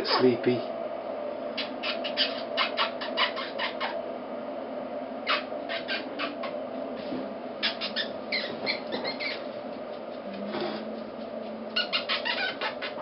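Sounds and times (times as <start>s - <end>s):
puppies squeaking and whimpering: 1.6s - 4.0s, 5.3s - 6.6s, 7.6s - 10.9s, 11.7s - 13.0s.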